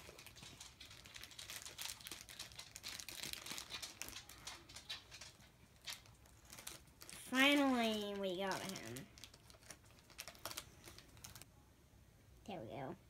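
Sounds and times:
plastic packaging crinkling: 0.0s - 11.5s.

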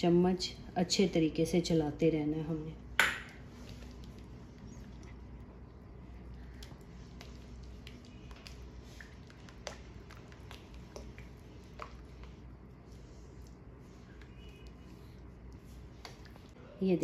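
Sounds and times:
faint steady hum: 0.0s - 17.0s
spatula stirring thick soup: 3.4s - 16.6s.

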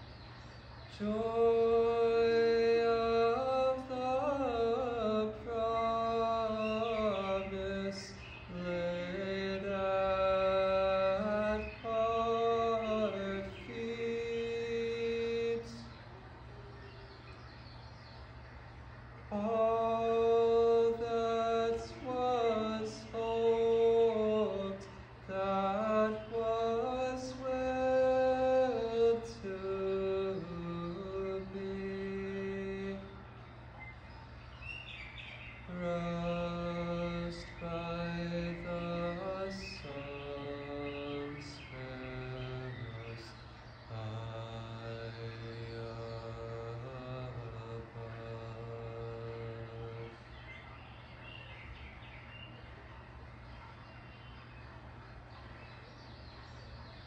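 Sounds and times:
faint low hum: 0.0s - 57.0s
man singing chant-like phrases: 0.9s - 16.2s, 19.3s - 33.4s, 35.6s - 50.4s.

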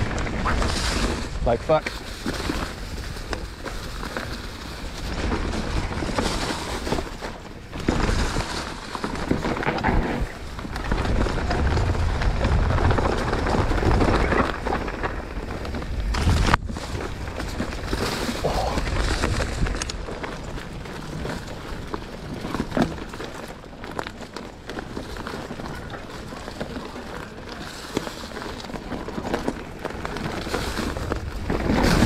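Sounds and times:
wind buffeting microphone: 0.0s - 23.0s
bike knocks and rattles: 0.0s - 32.0s
bike tyres rolling over dirt: 0.0s - 32.0s.

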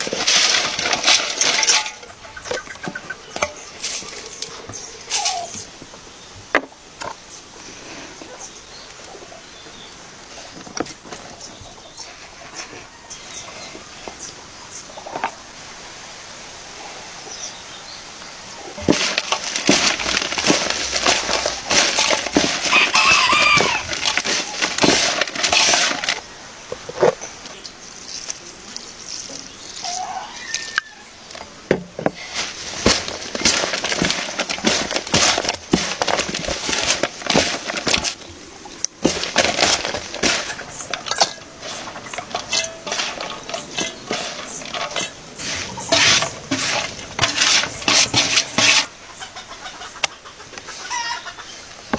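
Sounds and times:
hands tossing salad in metal basin: 0.0s - 5.7s, 18.8s - 26.3s, 32.1s - 48.9s.

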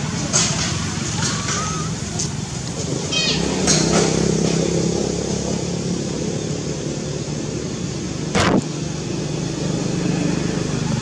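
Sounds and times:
loud burst of noise: 8.3s - 8.9s.

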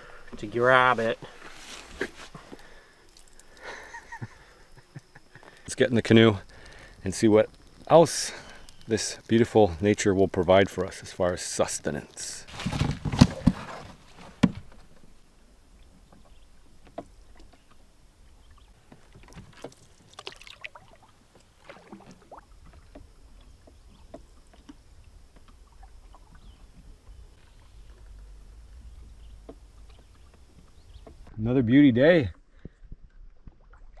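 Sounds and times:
water splashes and drips: 1.2s - 4.3s, 15.8s - 31.3s, 33.0s - 34.0s
paddle strokes in water: 15.8s - 31.4s.

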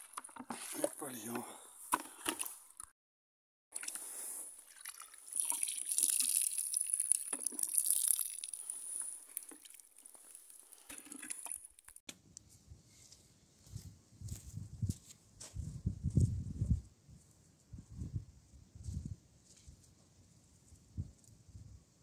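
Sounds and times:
water splashing and trickling: 3.8s - 12.0s.

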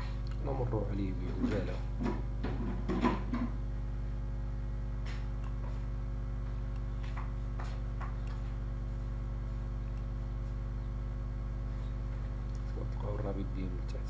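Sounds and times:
steady low hum: 0.0s - 14.0s
person talking: 0.3s - 1.9s, 12.6s - 14.0s.

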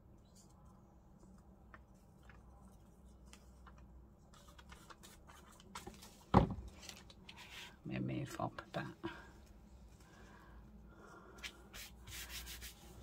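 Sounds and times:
paper rustling: 1.8s - 7.7s.

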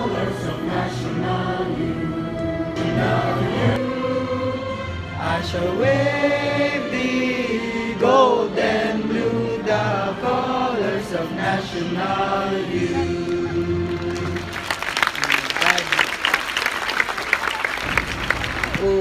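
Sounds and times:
crowd singing together: 0.0s - 14.6s.

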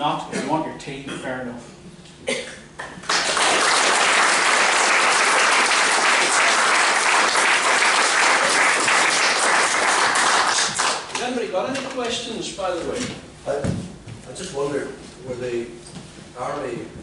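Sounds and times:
audience applauding: 2.9s - 11.2s.

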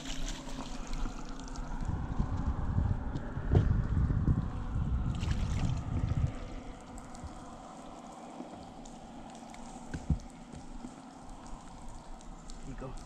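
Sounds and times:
water around a boat: 0.0s - 13.0s
wind buffeting microphone: 0.7s - 13.0s
light ticks: 7.0s - 13.0s.

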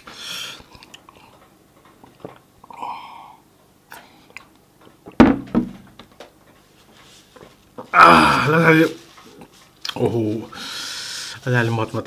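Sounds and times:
loud thumps: 5.2s - 6.0s.

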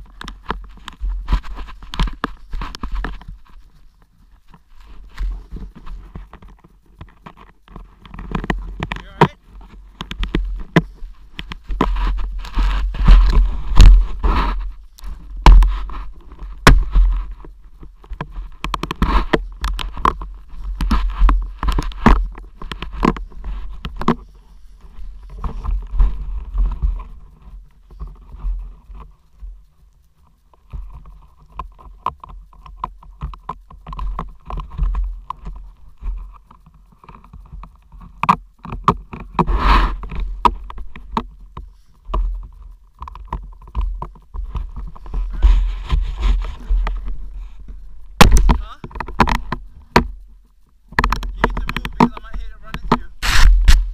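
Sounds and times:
snow ticking on camera housing: 0.0s - 53.9s
low rumble on microphone: 7.6s - 29.8s, 39.2s - 53.9s
snow spraying and hissing: 53.1s - 53.9s.

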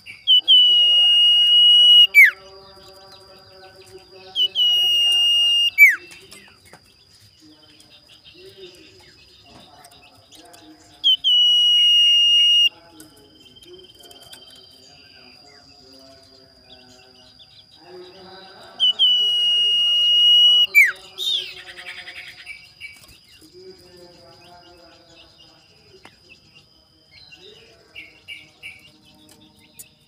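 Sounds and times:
bird whistling song: 0.0s - 3.0s, 3.8s - 7.0s, 10.0s - 12.8s, 18.7s - 23.1s
bird harsh chatter: 0.0s - 7.1s, 8.0s - 14.8s, 17.6s - 23.4s.

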